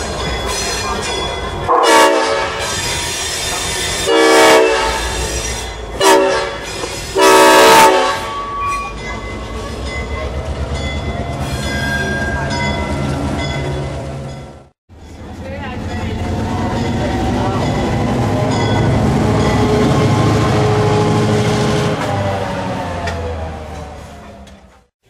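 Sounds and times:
locomotive air horn blasts: 1.7s - 2.8s, 4.0s - 5.3s, 6.0s - 6.6s, 7.2s - 8.8s.

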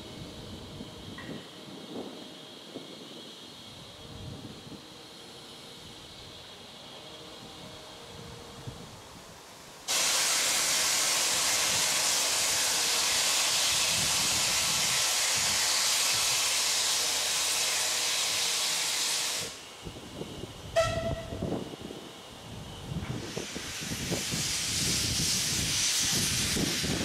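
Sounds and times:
steam locomotive hissing: 0.0s - 27.0s
sharp whistle note: 20.8s - 21.4s.

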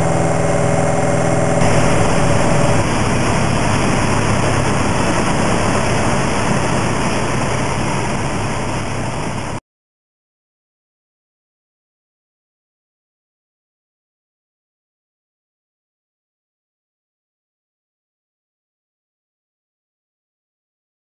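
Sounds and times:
aircraft engine drone: 0.0s - 9.6s
airflow noise: 0.0s - 9.6s.

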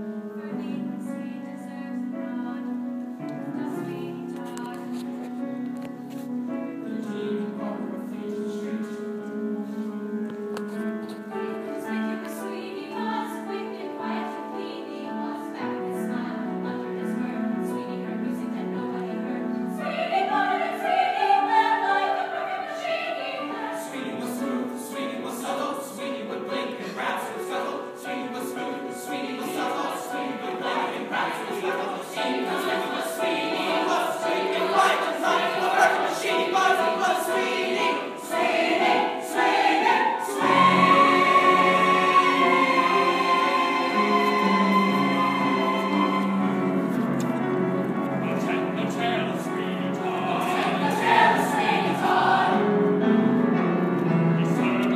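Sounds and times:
chorus of mixed voices singing: 11.2s - 53.2s.

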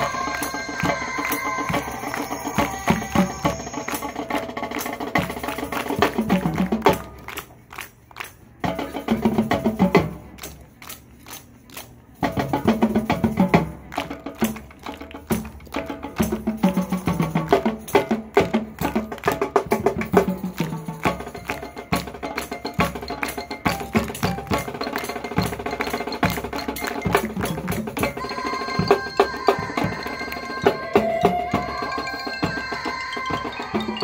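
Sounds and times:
held wind chords: 0.0s - 7.6s
marching band percussion: 0.0s - 34.0s.

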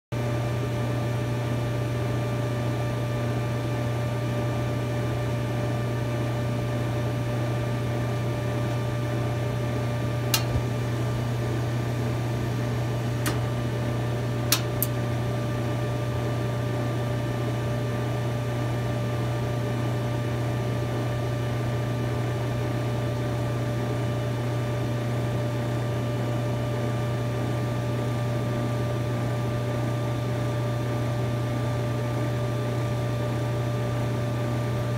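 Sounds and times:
dryer humming: 4.3s - 29.6s
burner igniter clicks: 10.3s - 10.8s, 13.2s - 13.6s, 14.4s - 15.0s.

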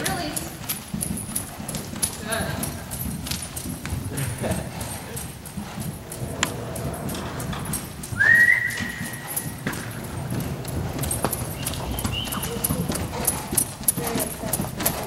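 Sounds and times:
horse hoofbeats on soft footing: 0.0s - 15.0s.

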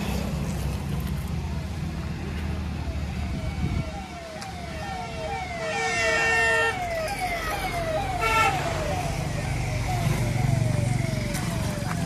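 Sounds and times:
siren sweeping down in pitch: 2.9s - 12.0s.

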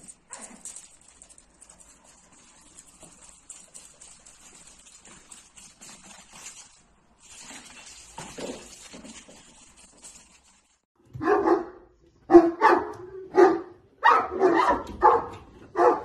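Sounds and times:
dog barking: 11.2s - 16.0s.

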